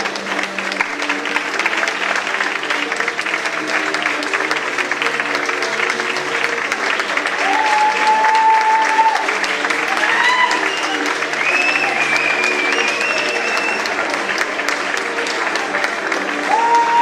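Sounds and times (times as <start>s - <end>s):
audience applauding: 0.0s - 17.0s
tango music: 0.0s - 17.0s
long whistle: 10.6s - 13.8s.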